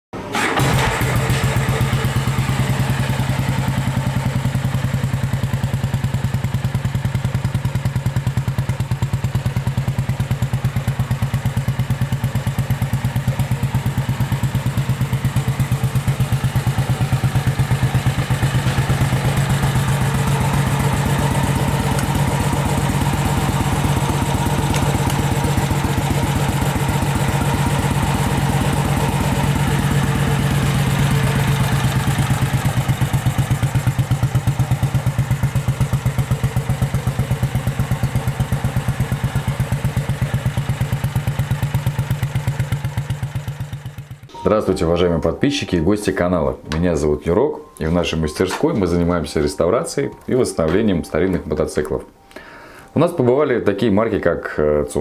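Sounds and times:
motorcycle engine idling: 0.4 - 44.3.

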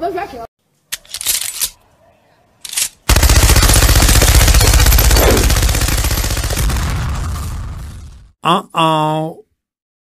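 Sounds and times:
machine gun firing: 3.0 - 7.6.

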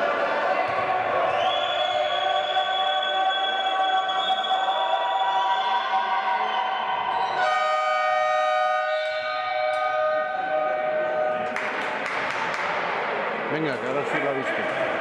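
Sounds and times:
hall noise: 7.2 - 13.4
scoreboard horn tone: 7.4 - 11.6.

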